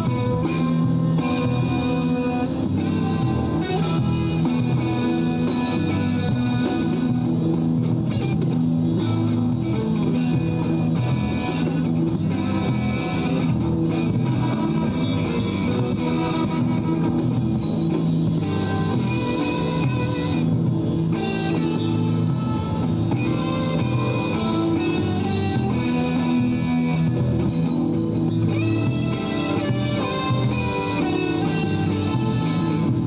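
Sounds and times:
bass line: 0.0s - 33.0s
plucked guitar: 0.0s - 33.0s.

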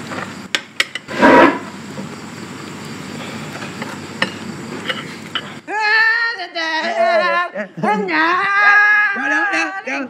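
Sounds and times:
chair scraping on tiled floor: 1.1s - 1.7s.

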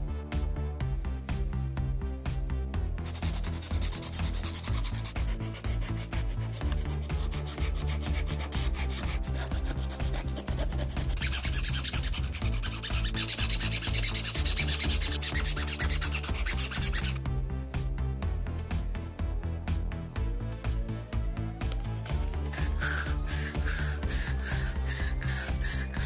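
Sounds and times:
hands scrubbing motor parts: 3.0s - 17.2s, 22.1s - 26.0s
harsh sanding rasp: 3.0s - 17.2s, 22.5s - 26.0s.

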